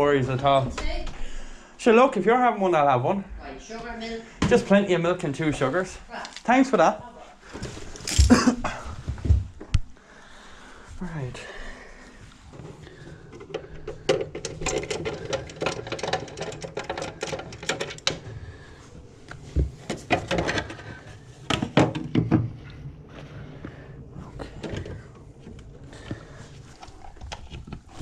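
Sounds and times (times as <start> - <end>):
screwdriver clicking and rattling: 13.4 - 18.2.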